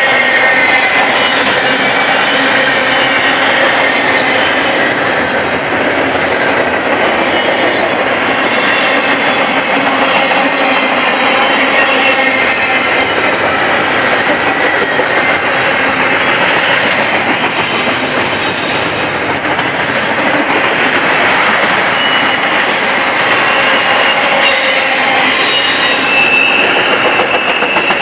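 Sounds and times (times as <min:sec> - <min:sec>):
train wheels rushing on rail: 0:00.0 - 0:28.0
high wheel squeals: 0:21.6 - 0:28.0.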